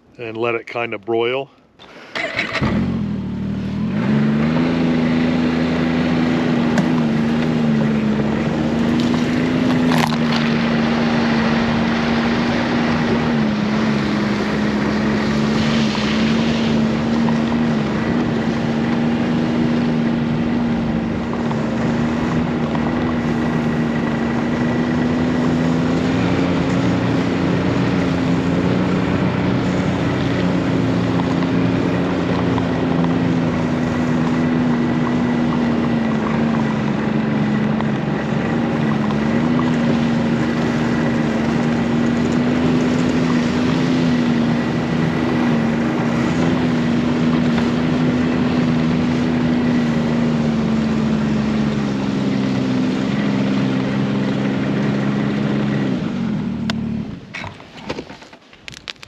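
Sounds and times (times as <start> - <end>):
snowmobile engine: 1.8 - 59.0
wind on microphone: 6.4 - 38.2.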